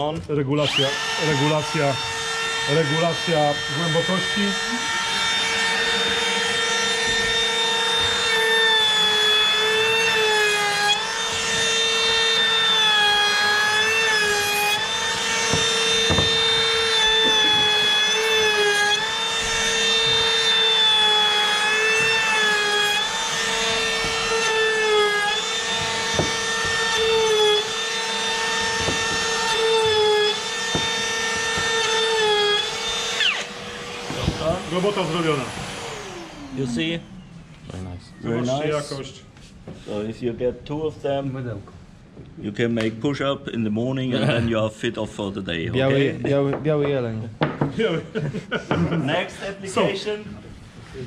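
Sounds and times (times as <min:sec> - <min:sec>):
trim router cutting wood: 0:00.0 - 0:39.0.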